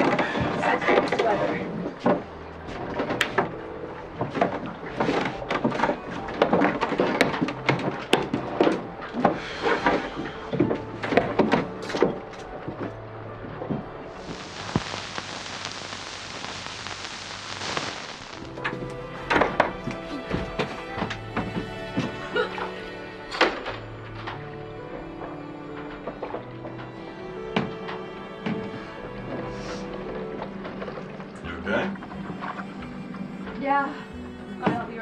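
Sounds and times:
steady hiss: 13.8 - 22.0.

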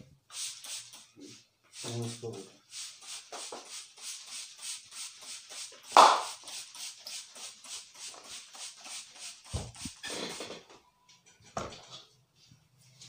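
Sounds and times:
hands massaging head rhythmically: 5.8 - 7.3, 9.2 - 10.0.

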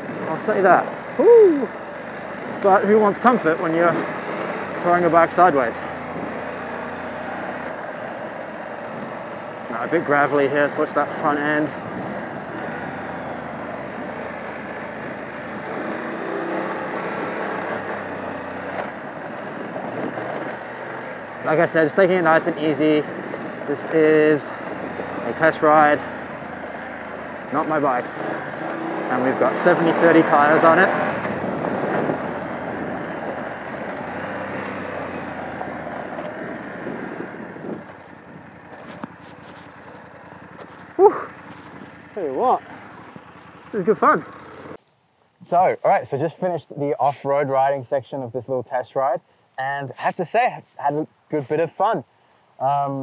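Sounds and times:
motorcycle engine running: 0.0 - 44.8
tyres on loose gravel: 1.7 - 45.8
wind noise: 31.2 - 33.6, 36.0 - 39.0.

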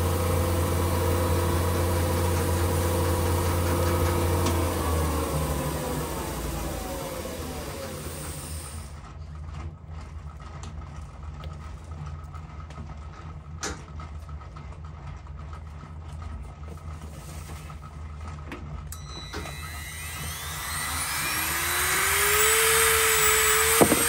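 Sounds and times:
lathe spindle whine: 0.0 - 8.9, 19.0 - 24.0
low machine hum: 0.0 - 24.0.

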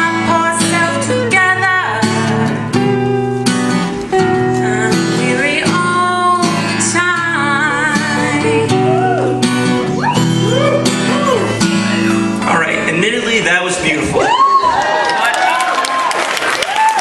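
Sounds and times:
woman singing: 0.0 - 9.8
guitars strumming: 0.0 - 14.3.

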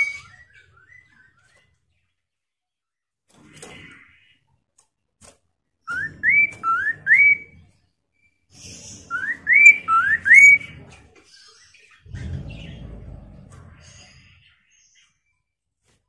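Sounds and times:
bird whistling calls: 0.0 - 0.6, 5.9 - 7.6, 9.0 - 10.7
low rumble: 12.0 - 14.3.

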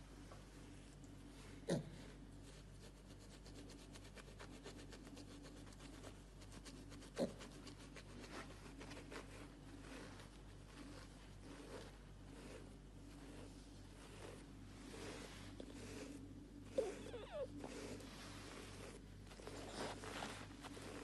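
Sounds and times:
scratchy rubbing on bristles: 2.4 - 21.0.

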